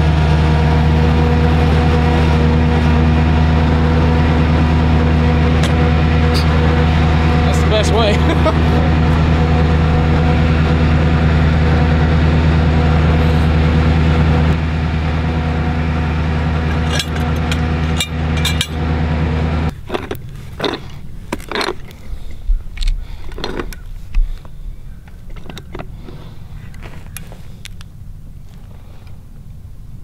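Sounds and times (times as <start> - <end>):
truck engine idling: 0.0 - 30.0
pipe wrench clinking on metal: 16.6 - 18.8, 19.7 - 22.0, 22.8 - 23.8.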